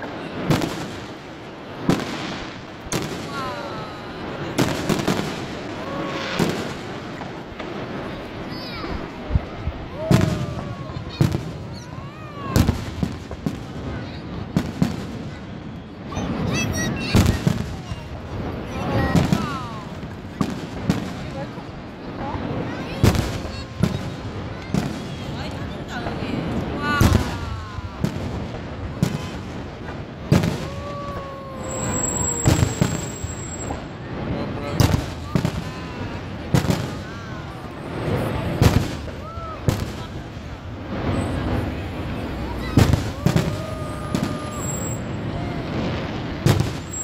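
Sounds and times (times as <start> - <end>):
fireworks bursting with booms: 0.0 - 47.0
fireworks shells bursting: 31.6 - 34.0, 42.8 - 45.2.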